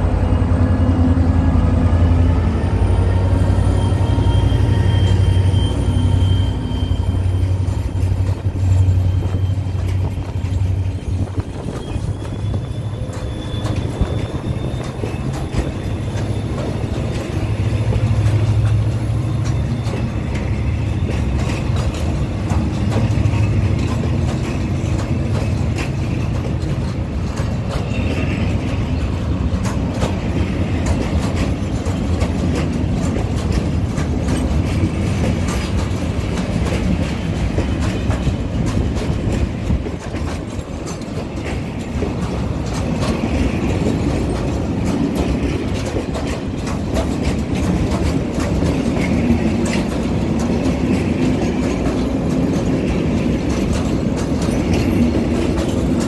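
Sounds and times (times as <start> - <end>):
diesel locomotive engine drone: 0.0 - 56.0
high wheel squeals: 2.1 - 22.4
wheels clicking over rail joints: 7.0 - 56.0.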